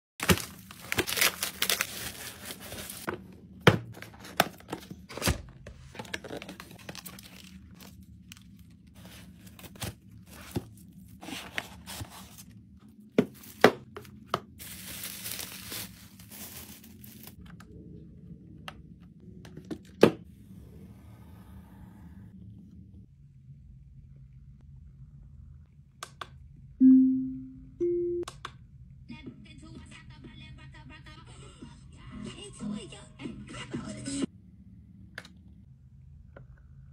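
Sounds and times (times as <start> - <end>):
plastic mailer tearing: 0.2 - 3.1
plastic wrapping crinkling: 0.2 - 3.1, 5.9 - 12.5, 14.6 - 17.4.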